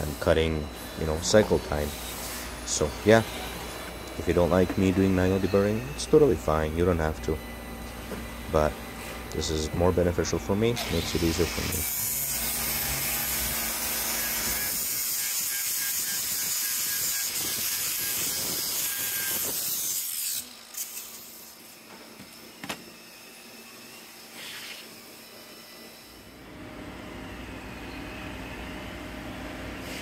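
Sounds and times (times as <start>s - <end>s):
grinder grinding steel: 0.0s - 22.6s.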